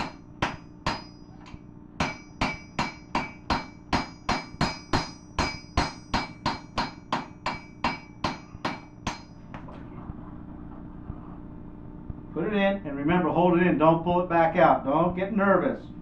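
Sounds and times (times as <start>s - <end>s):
hammer striking steel on anvil: 0.0s - 9.4s.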